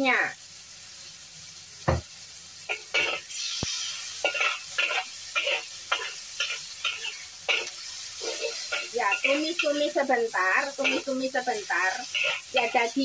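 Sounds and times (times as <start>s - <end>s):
meat sizzling in a wok: 0.0s - 13.0s
spatula scraping a wok: 2.7s - 13.0s.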